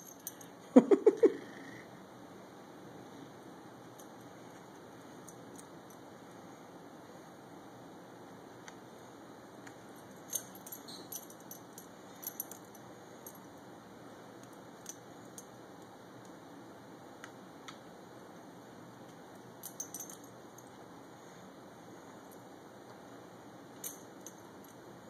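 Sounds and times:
metal tags jingling on dog collar: 10.2 - 13.4, 19.6 - 20.7.

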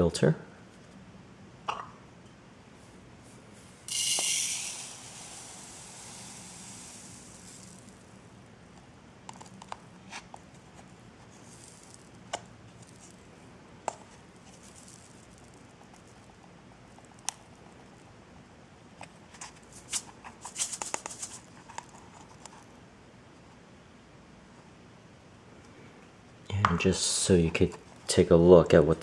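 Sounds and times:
carbon granules pouring into plastic cup: 3.9 - 8.1.

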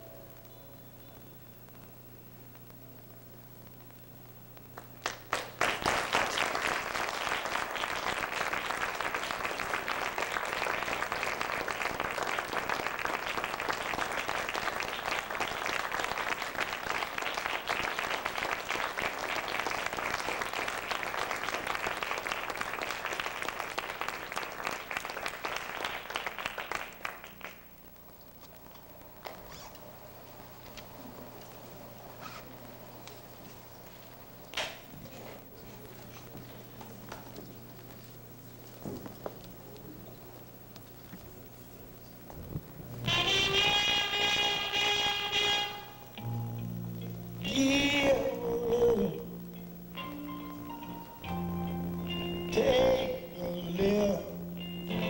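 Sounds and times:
audience applauding: 4.8 - 27.8.

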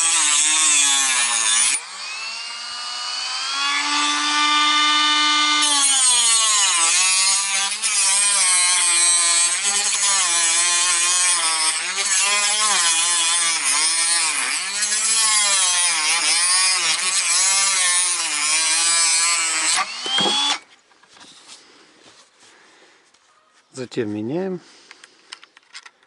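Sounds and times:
power tool cutting plastic pipe: 0.0 - 20.7.

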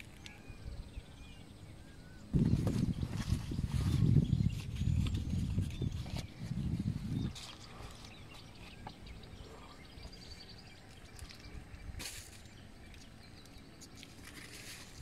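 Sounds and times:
faint bird calls: 7.1 - 15.0
short rustle: 13.9 - 15.0.

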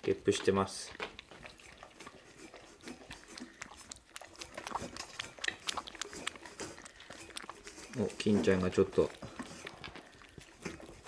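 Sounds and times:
kittens lapping milk: 0.0 - 11.0.

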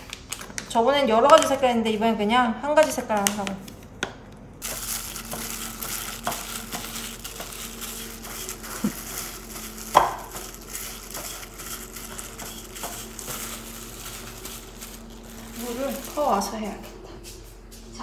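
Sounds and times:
gloved hand rustling flour: 4.6 - 16.9.

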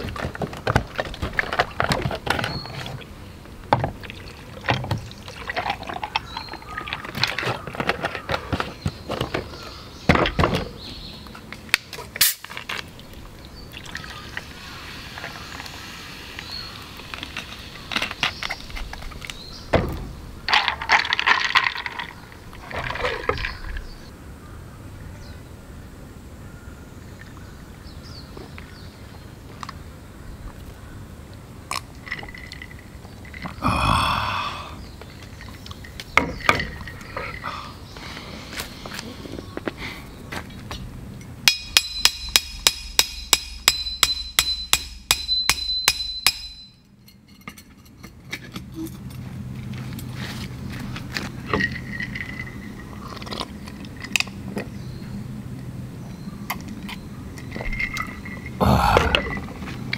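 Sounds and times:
ice clinking and cracking: 20.5 - 23.8, 31.7 - 33.6.

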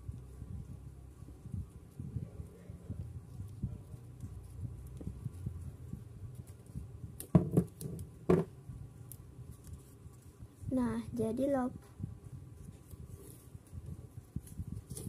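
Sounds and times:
scissors knocking on table: 7.2 - 8.5.

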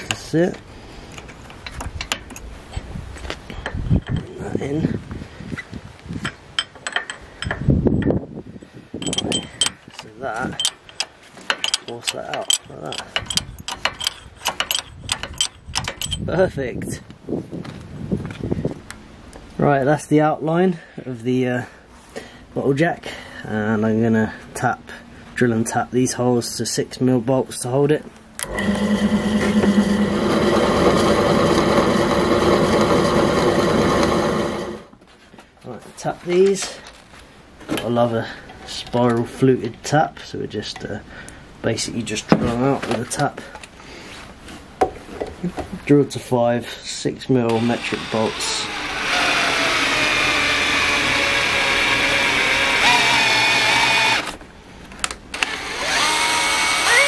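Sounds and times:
drill boring into steel: 28.4 - 34.9, 47.5 - 54.4, 55.4 - 57.0.

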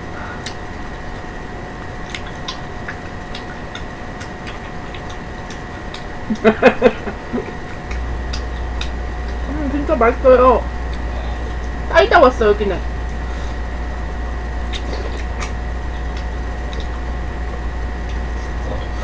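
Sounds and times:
faint steady hum: 0.0 - 19.0
woman laughing: 6.3 - 7.9.

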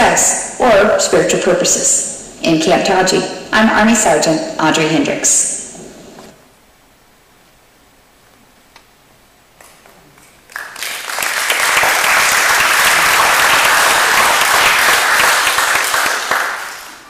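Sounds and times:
audience applauding: 10.5 - 17.0.

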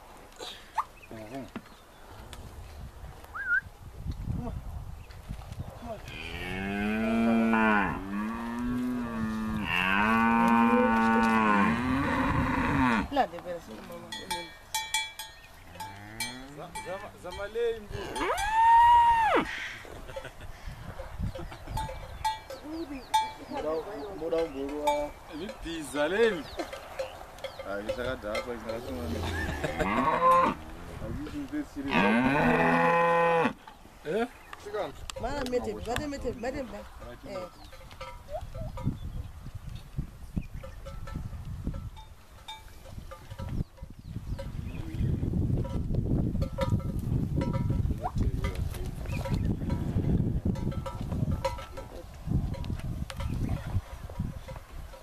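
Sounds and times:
calf mooing: 6.1 - 13.1.

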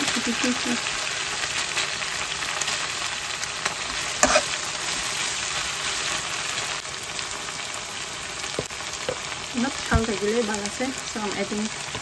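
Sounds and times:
food sizzling in a wok: 0.0 - 12.0
metal spatula stirring: 3.9 - 4.6.

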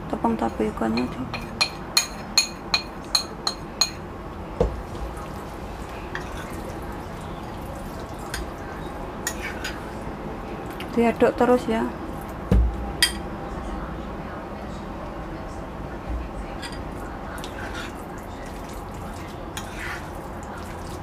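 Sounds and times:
hands squishing minced meat: 17.4 - 21.0.

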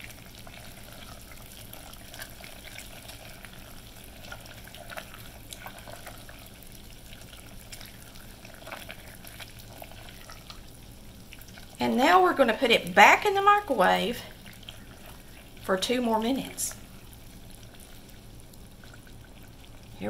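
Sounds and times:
low hiss and hum: 0.0 - 20.0.

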